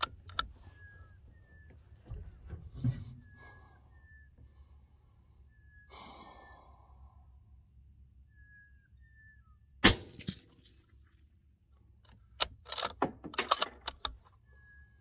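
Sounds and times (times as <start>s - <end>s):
suppressed rifle shot: 9.8s - 10.7s.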